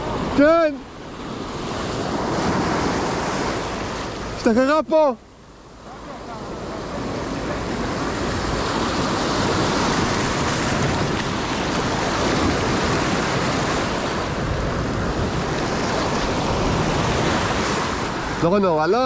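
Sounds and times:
wind buffeting microphone: 0:06.3 - 0:18.4
surf breaking on rocks: 0:06.5 - 0:18.8.

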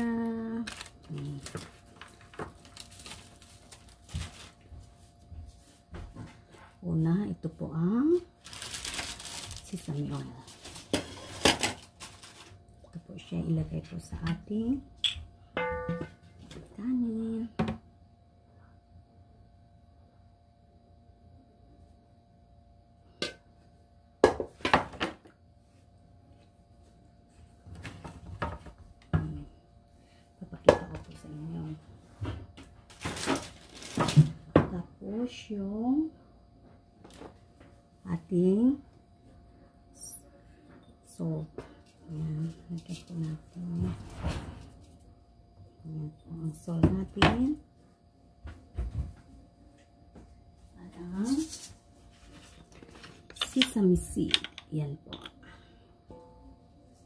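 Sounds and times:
seaweed sheet rustling: 0:08.4 - 0:09.8
kitchenware knocks and clinks: 0:15.0 - 0:16.2.

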